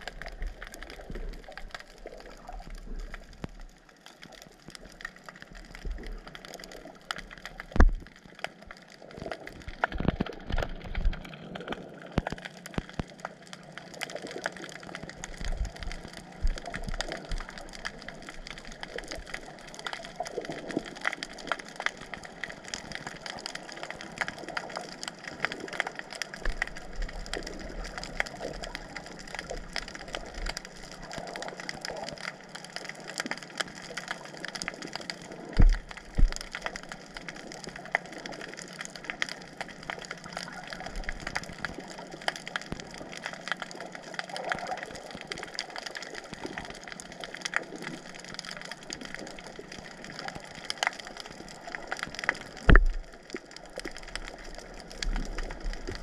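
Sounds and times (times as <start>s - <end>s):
underwater crackle of clicks: 0.0s - 56.0s.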